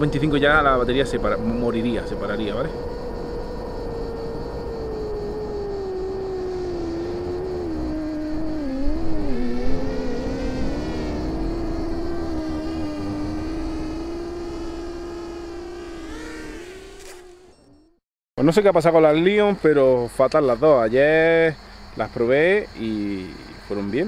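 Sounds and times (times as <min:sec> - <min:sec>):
quadcopter motors whining: 0:00.0 - 0:18.0.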